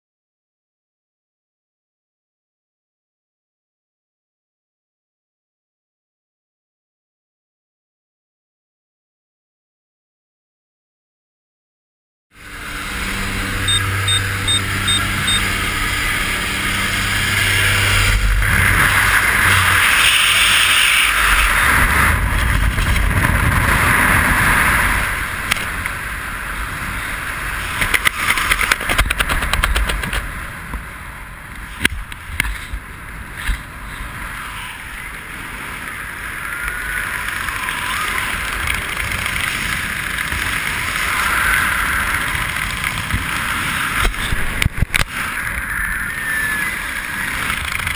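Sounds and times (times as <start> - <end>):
aircraft engine droning: 12.4 - 23.2
heavy wind rush on microphone: 12.4 - 47.9.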